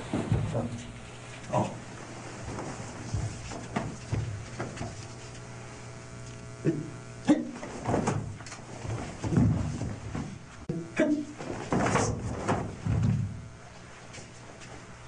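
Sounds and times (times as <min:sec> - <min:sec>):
steady low hum: 0:00.0 - 0:15.0
feet thumping on floor: 0:02.4 - 0:05.3, 0:07.6 - 0:10.7, 0:11.4 - 0:13.5.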